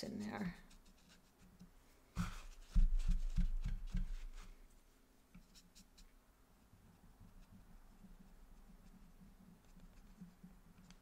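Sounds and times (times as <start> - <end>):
brush tapping on paper: 2.2 - 4.6, 5.4 - 11.0.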